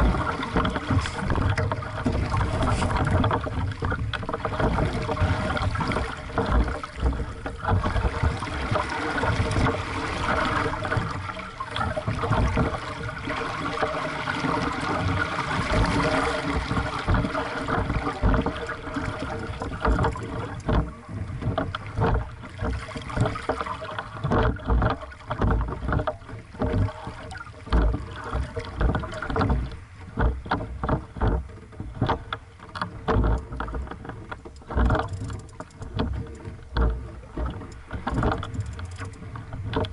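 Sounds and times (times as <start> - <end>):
water slapping against hull: 0.0 - 39.9.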